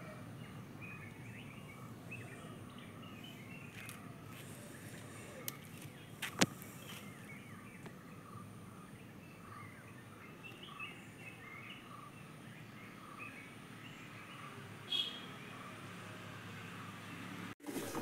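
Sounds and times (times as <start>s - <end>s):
small birds chirping: 0.0s - 17.5s.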